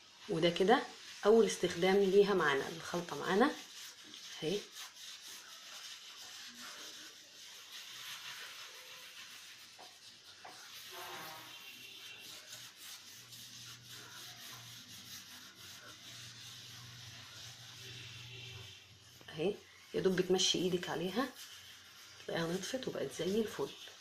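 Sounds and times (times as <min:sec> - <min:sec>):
hand rubbing on ceramic tiles: 0:00.2 - 0:24.0.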